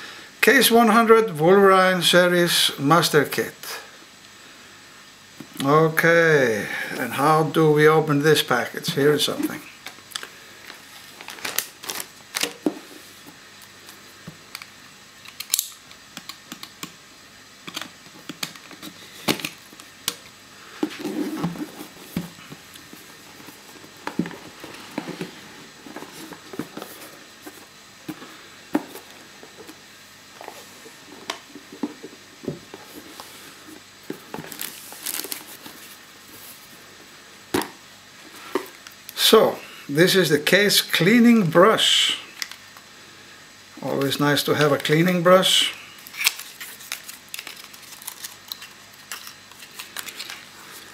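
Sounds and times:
packing material rustling: 9.4s - 12.6s, 34.2s - 36.6s, 46.0s - 50.9s.

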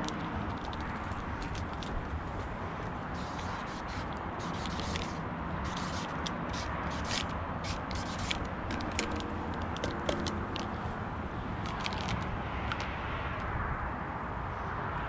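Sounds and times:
light clicks and scrapes: 0.0s - 11.0s, 11.6s - 13.5s
paint marker scratching on metal: 3.2s - 10.3s.

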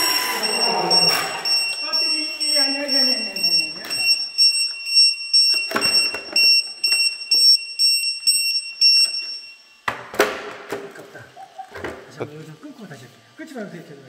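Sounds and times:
high-pitched electronic beeping: 0.0s - 9.6s.

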